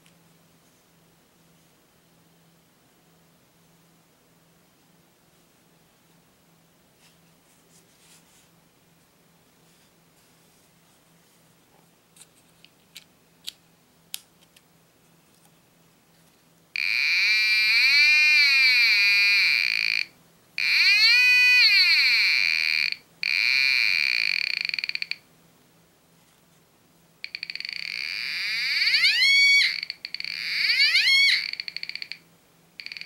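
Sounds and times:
metal detector buzzing beat tone: 16.8s - 25.2s, 27.2s - 32.2s, 32.8s - 33.0s.

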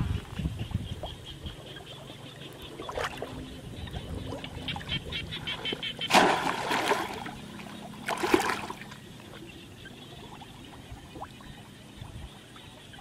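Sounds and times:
water splashing: 4.1s - 9.5s.

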